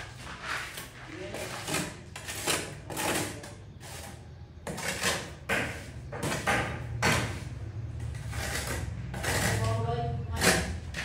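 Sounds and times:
trowel scraping mortar: 0:00.0 - 0:11.0.

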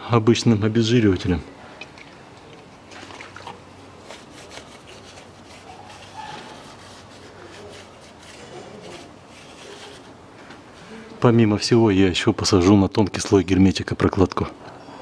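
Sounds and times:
cloth rag rubbing on metal: 0:04.0 - 0:10.2.

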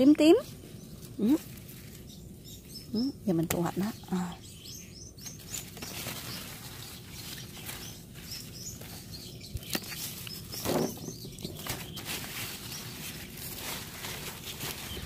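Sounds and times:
faint birds chirping: 0:00.0 - 0:15.0
plants rustling and clicking: 0:05.2 - 0:15.0.

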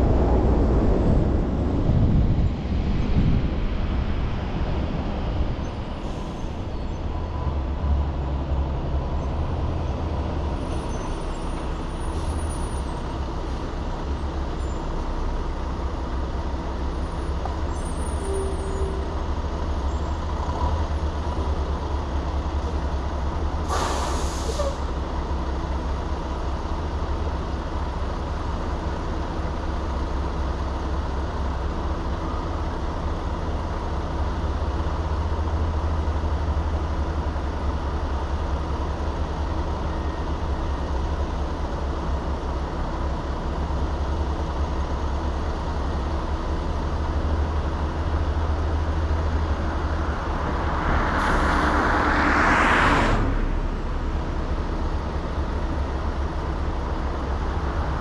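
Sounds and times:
motor vehicle rumble: 0:00.0 - 0:58.0
short hiss: 0:23.7 - 0:24.8.

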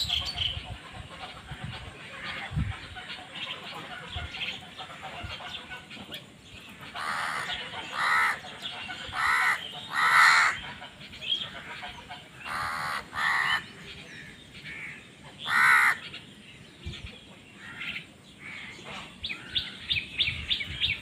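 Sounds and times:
crows cawing: 0:07.0 - 0:08.4, 0:09.1 - 0:10.6, 0:12.4 - 0:16.0.

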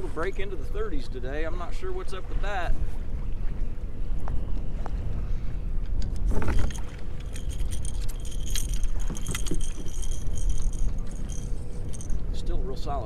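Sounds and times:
wind rumble on microphone: 0:00.0 - 0:13.0
fishing reel clicking: 0:06.6 - 0:12.2.

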